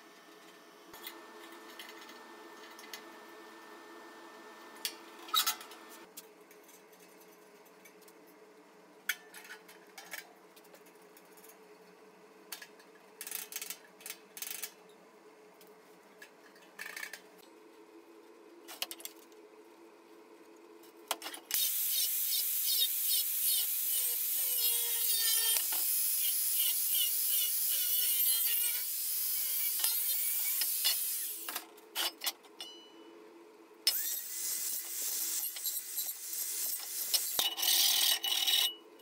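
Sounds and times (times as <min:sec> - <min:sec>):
angle grinder cutting steel: 0:21.6 - 0:31.5, 0:33.9 - 0:37.4.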